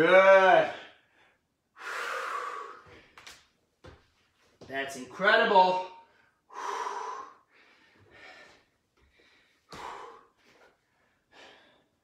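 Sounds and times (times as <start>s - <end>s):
man breathing hard: 0.7s - 3.2s, 6.1s - 12.0s.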